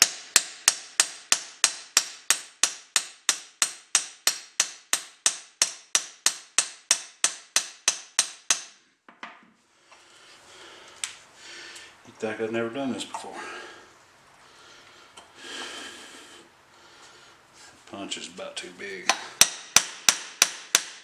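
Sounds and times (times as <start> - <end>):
hammer striking metal punch: 0.0 - 8.8, 19.1 - 21.0.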